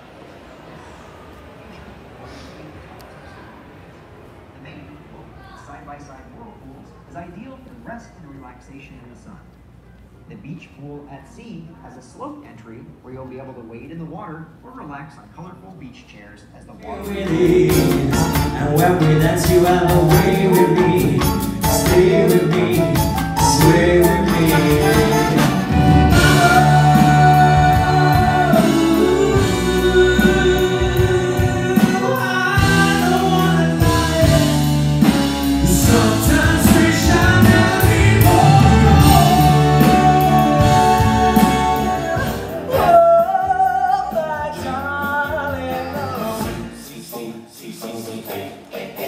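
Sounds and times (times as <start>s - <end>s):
male vocal group singing: 16.8s - 49.0s
live band playing: 16.9s - 47.2s.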